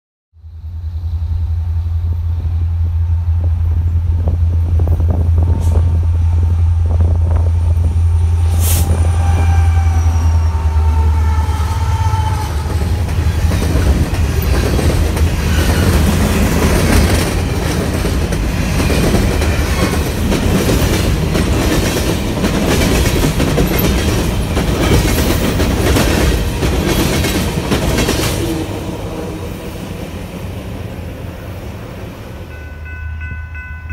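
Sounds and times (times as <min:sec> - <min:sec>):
diesel locomotive droning: 0:00.3 - 0:33.9
train wheels clicking over rail joints: 0:12.6 - 0:28.6.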